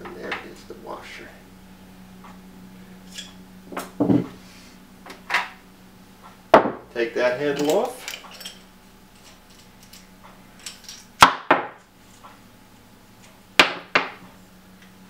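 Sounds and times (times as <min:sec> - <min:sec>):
metal parts clanking on table: 0:07.5 - 0:08.6.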